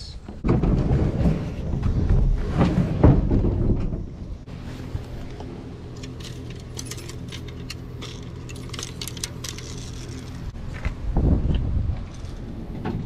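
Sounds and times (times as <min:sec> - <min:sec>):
steady low hum: 0:00.1 - 0:13.0
fishing reels clicking and jingling: 0:06.0 - 0:10.4.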